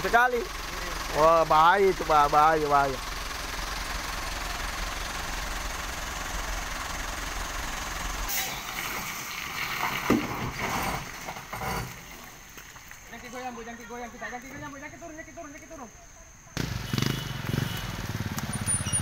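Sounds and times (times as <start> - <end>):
truck engine idling: 0.0 - 8.3.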